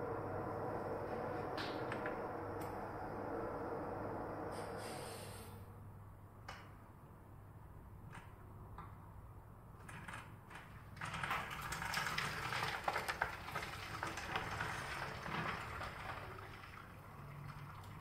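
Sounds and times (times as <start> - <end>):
low steady hum: 0.0 - 9.8
water rushing with crackles: 11.6 - 18.0.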